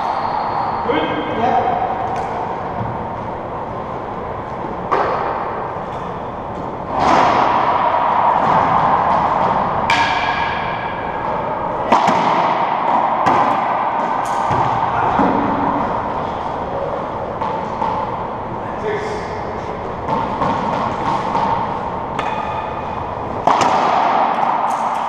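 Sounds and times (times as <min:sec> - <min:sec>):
steady hum: 0:00.0 - 0:25.0
racquetball ball smacks echoing: 0:06.9 - 0:15.9, 0:20.0 - 0:25.0.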